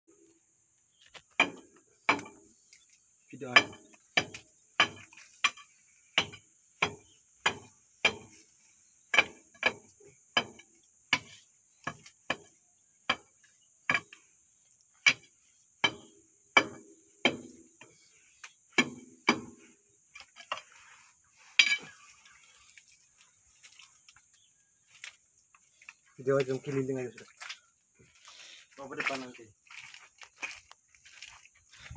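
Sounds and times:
steel bar clinking on steel: 0:21.6 - 0:22.2.

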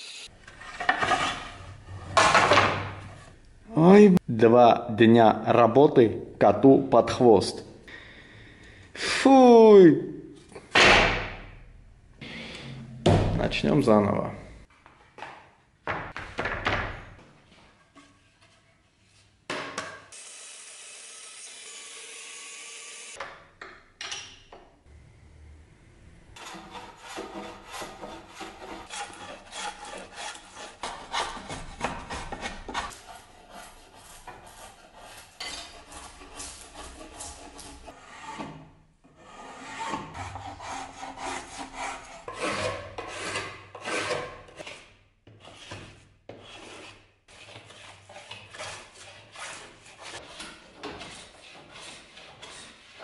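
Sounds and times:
hand tools scraping wood: 0:00.4 - 0:03.4, 0:26.4 - 0:53.0
hand plane shaving board: 0:26.4 - 0:38.6, 0:39.2 - 0:53.0.

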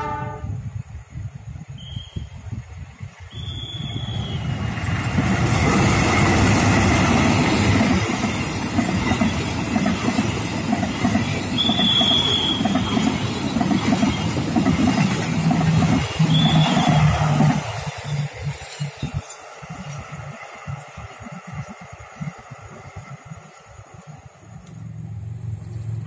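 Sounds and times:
train wheels rumbling on rails: 0:00.0 - 0:26.0
wheels squealing: 0:03.3 - 0:10.4, 0:11.2 - 0:22.4.

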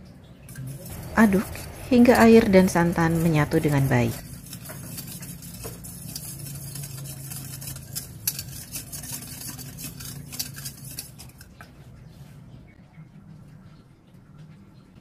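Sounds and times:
whisk clicking against metal pan: 0:00.5 - 0:11.5.

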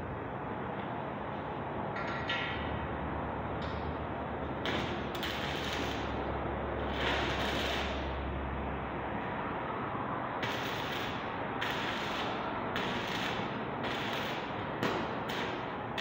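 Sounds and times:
welding arc crackling and sizzling: 0:04.6 - 0:08.3, 0:10.4 - 0:16.0.

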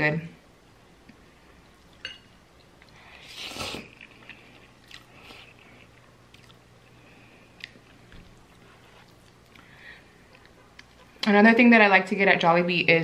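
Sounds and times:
chewing: 0:02.6 - 0:11.3
slurping noodles: 0:03.2 - 0:03.9.

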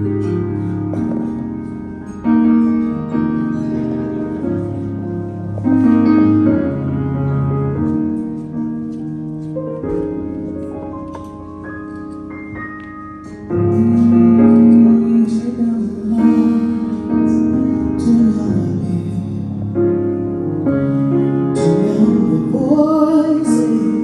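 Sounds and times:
piano playing slow chords: 0:00.0 - 0:24.0.

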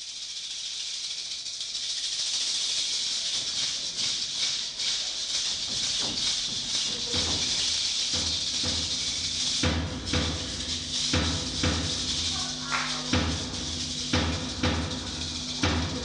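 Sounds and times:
shaker rattle percussion: 0:00.0 - 0:16.0
low drum beats: 0:06.1 - 0:16.0.

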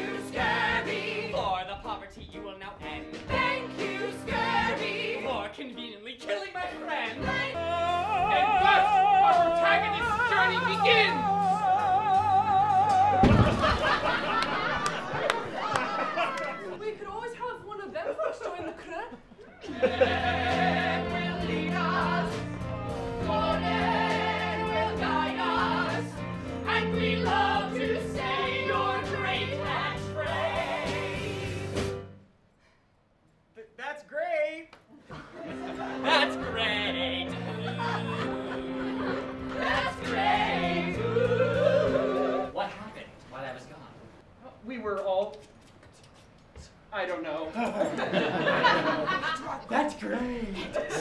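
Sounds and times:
voices singing show tune: 0:00.0 - 0:02.1, 0:03.2 - 0:13.7, 0:19.6 - 0:31.9, 0:35.6 - 0:42.6
operatic singing voice: 0:07.1 - 0:13.5, 0:36.0 - 0:42.6.

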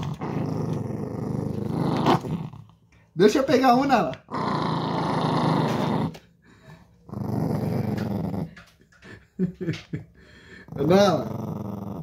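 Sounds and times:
small dog growling: 0:00.0 - 0:02.8, 0:04.2 - 0:06.3, 0:07.0 - 0:08.8, 0:10.6 - 0:12.0.

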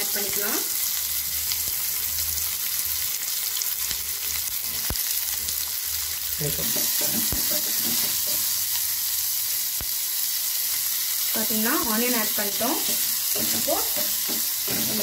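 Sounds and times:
onions sizzling in hot oil: 0:00.0 - 0:15.0
sharp taps on pan: 0:06.6 - 0:08.5, 0:12.8 - 0:15.0
spatula scraping pan: 0:06.7 - 0:08.5, 0:12.8 - 0:15.0.

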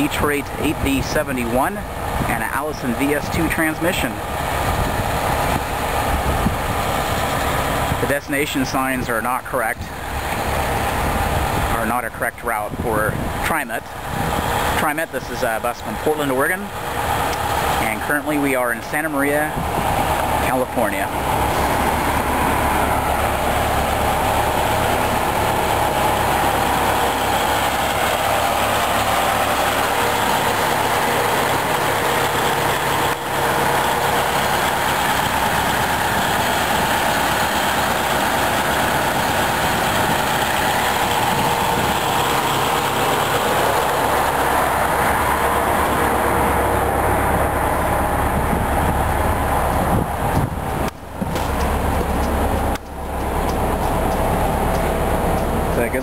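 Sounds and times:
diesel bus engine idling: 0:00.0 - 0:56.0.

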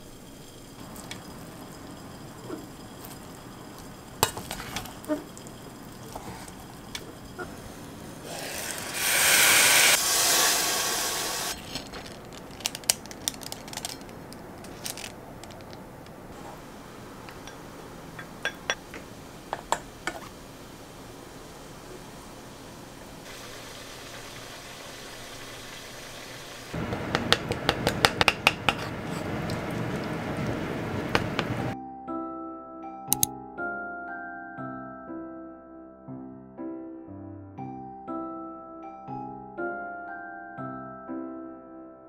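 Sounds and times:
loud hiss: 0:00.0 - 0:12.2, 0:16.3 - 0:27.0
rice paddle scraping a pot: 0:02.4 - 0:12.0, 0:16.3 - 0:16.7, 0:27.6 - 0:31.6
spoon clinking against bowl: 0:18.2 - 0:20.3.

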